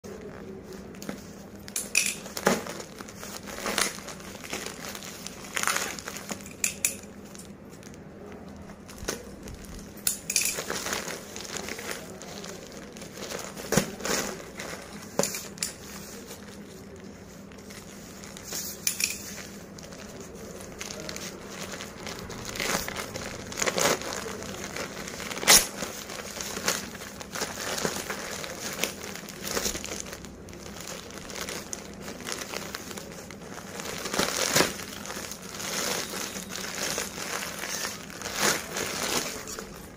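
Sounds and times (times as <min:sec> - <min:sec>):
plastic packaging crinkling: 0:00.1 - 0:39.9
sharp plastic crackles: 0:00.1 - 0:39.9.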